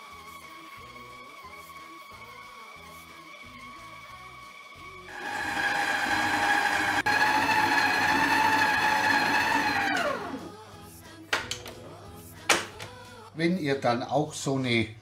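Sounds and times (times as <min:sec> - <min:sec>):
stand mixer motor whining: 0:05.1 - 0:10.5.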